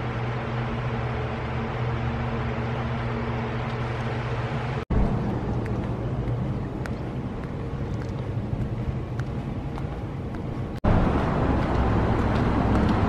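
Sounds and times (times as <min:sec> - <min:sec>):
fan hum: 0:00.0 - 0:13.0
passing traffic rumble: 0:00.0 - 0:13.0
flip-flop footsteps: 0:05.1 - 0:10.9, 0:11.5 - 0:13.0.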